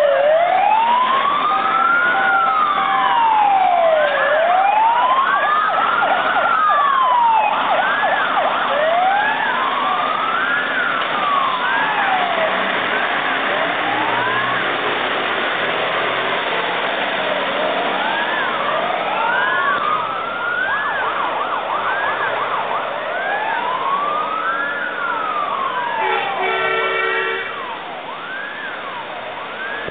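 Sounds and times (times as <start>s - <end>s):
fire engine sirens wailing: 0.0s - 29.9s
short horn blast: 26.0s - 27.6s.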